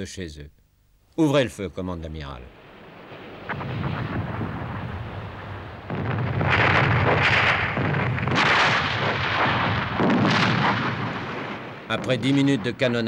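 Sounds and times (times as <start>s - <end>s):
cannon blasts and explosions: 2.5s - 13.0s
low rumble: 2.7s - 12.8s.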